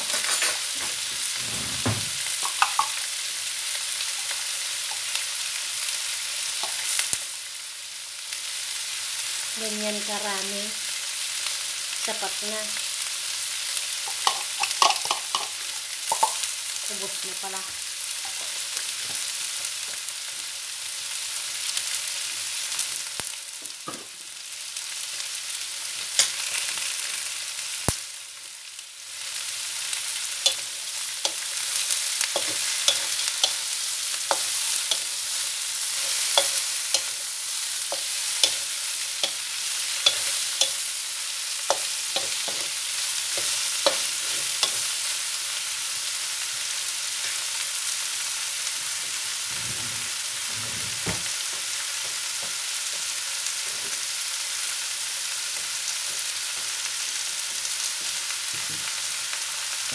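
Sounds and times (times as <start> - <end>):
shrimp sizzling in oil: 0.0 - 59.9
spoon and shells knocking on wok: 1.8 - 3.1, 14.1 - 16.5, 32.4 - 33.7, 36.0 - 37.2, 40.0 - 40.9, 41.7 - 44.9.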